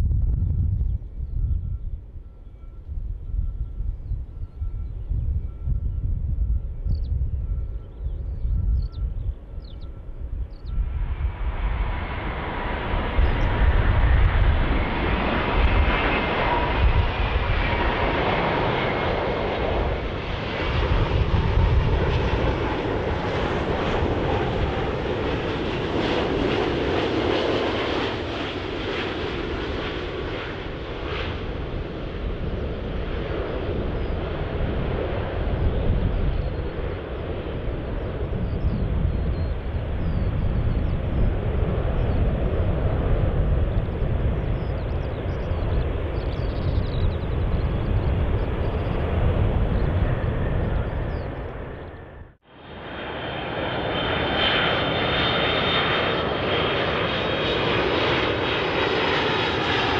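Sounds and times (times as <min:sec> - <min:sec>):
jet engine roar: 0:00.0 - 0:59.9.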